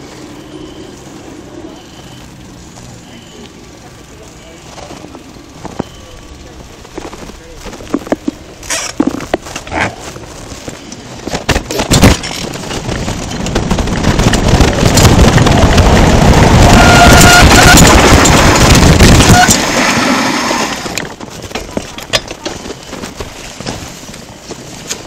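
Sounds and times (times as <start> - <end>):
tyre noise: 4.5 - 25.0
bike clicks and knocks: 4.8 - 16.0, 20.8 - 25.0
wind rushing over microphone: 11.2 - 21.5.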